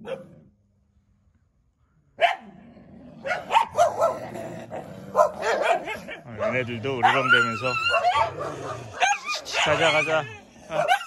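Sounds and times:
dogs barking: 0:00.0 - 0:00.3, 0:02.2 - 0:02.6, 0:03.2 - 0:11.0.

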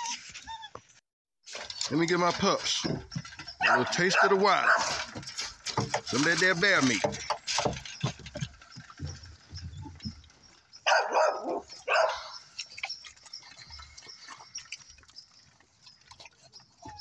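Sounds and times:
puppy chewing and tearing meat: 0:07.0 - 0:17.0.

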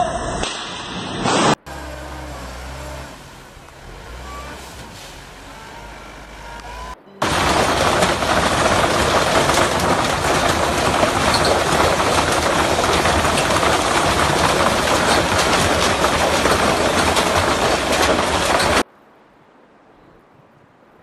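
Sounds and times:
hailstones pelting the ground: 0:07.2 - 0:18.8.

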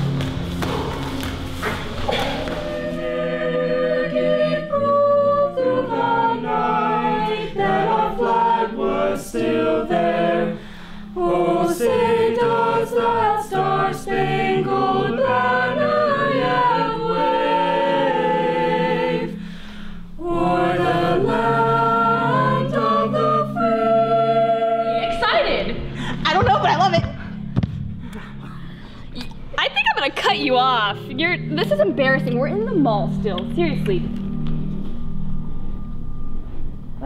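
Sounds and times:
choir singing in harmony: 0:00.0 - 0:26.3.

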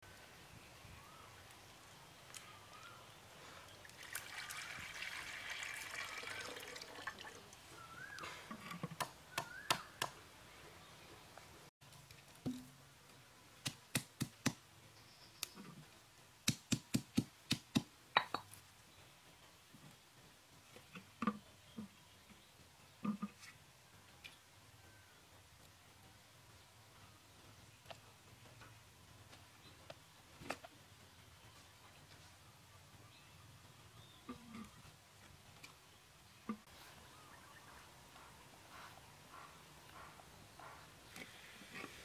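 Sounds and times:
birds chirping: 0:00.1 - 0:05.1, 0:07.2 - 0:11.6, 0:20.8 - 0:42.0
water pouring into clay pot: 0:03.8 - 0:07.7.

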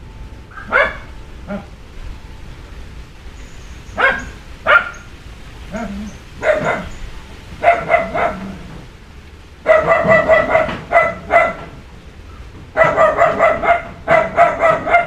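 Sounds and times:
dog barking: 0:00.5 - 0:01.7, 0:04.0 - 0:05.1, 0:05.7 - 0:07.0, 0:07.6 - 0:08.7, 0:09.6 - 0:11.8, 0:12.7 - 0:15.0.

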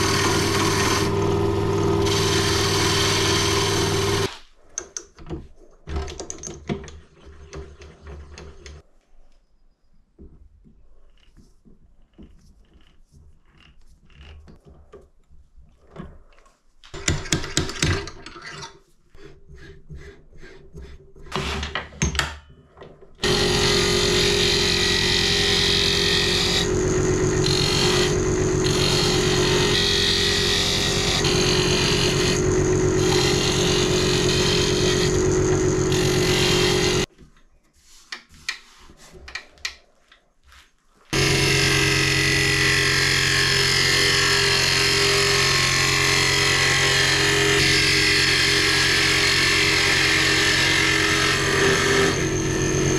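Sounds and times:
tool cutting spinning wood: 0:00.0 - 0:04.3, 0:23.2 - 0:37.1, 0:41.1 - 0:52.9
wood lathe humming: 0:00.0 - 0:04.3, 0:23.2 - 0:37.1, 0:41.2 - 0:52.9.

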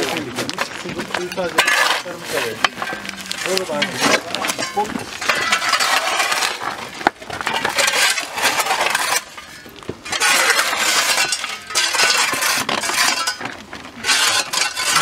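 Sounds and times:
shovels scraping gravelly soil: 0:00.0 - 0:15.0.

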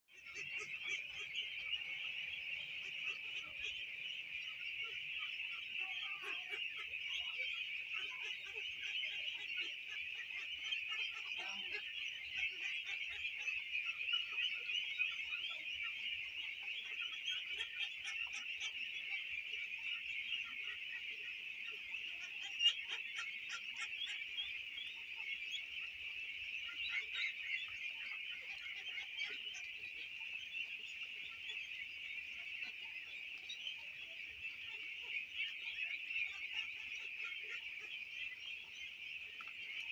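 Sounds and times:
ducklings peeping and calling: 0:00.1 - 0:39.9.

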